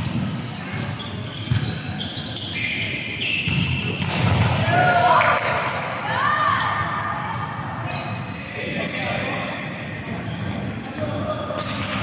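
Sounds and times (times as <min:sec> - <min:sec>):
shoe squeaks: 0:00.0 - 0:04.1, 0:06.3 - 0:08.6, 0:09.2 - 0:12.0
players' voices and chatter: 0:00.0 - 0:12.0.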